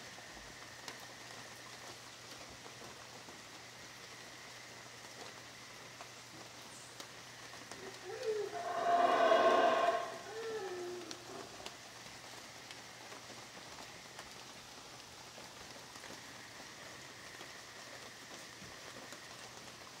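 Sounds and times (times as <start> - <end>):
light rain hissing: 0.0 - 20.0
monkey howling: 7.8 - 11.1.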